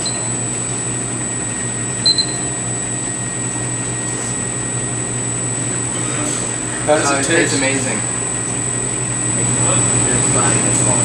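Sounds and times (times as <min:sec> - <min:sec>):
digital timer beep: 0:00.0 - 0:00.3, 0:02.0 - 0:02.5
ice cream freezer humming: 0:00.0 - 0:11.0.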